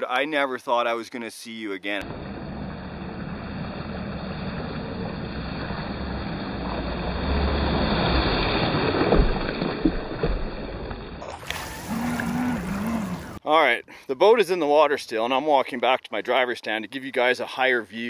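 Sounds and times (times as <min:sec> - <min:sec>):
rushing water: 0:02.1 - 0:13.4.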